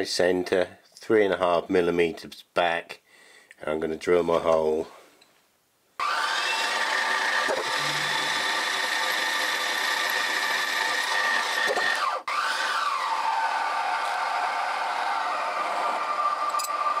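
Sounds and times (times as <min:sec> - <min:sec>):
drill boring through metal: 0:06.0 - 0:17.0.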